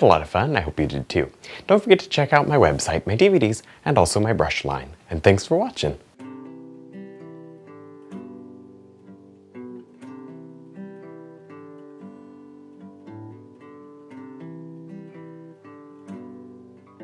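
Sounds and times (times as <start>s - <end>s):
acoustic guitar strumming chords: 6.0s - 17.0s.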